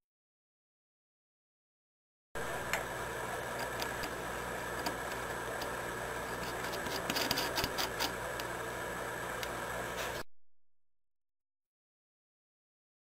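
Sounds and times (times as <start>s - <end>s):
machine hum: 2.4s - 10.3s.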